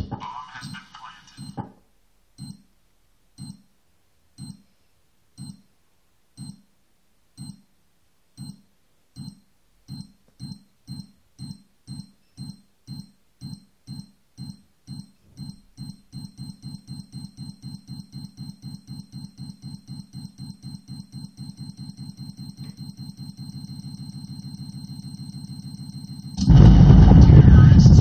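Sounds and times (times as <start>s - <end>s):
bomb countdown beeps: 0.6s - 1.7s, 2.4s - 2.7s, 3.4s - 3.7s, 4.4s - 4.6s, 5.4s - 5.6s, 6.4s - 6.6s, 7.4s - 7.7s, 8.4s - 8.6s, 9.2s - 26.5s.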